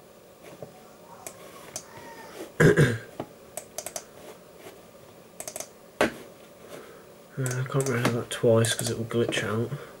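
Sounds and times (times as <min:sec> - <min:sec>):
computer mouse clicks: 0:01.2 - 0:01.9, 0:03.6 - 0:04.1, 0:05.4 - 0:05.7, 0:07.4 - 0:09.0.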